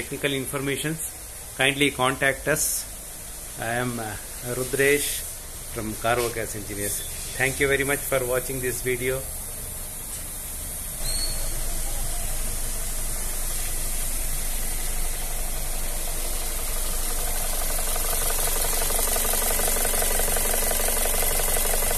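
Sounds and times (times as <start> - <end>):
car engine idling: 7.5 - 21.9.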